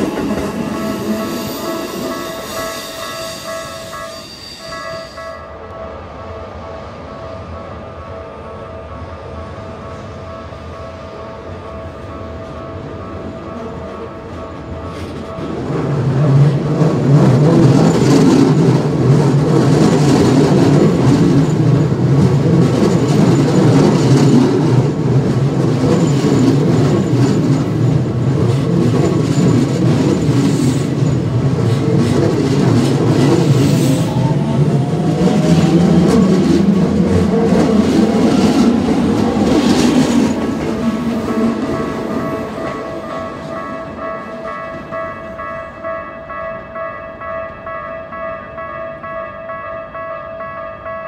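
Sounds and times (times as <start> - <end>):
train wheels clattering over rails: 0.0 - 3.7, 13.6 - 45.4
crossing warning bells ringing: 0.0 - 51.0.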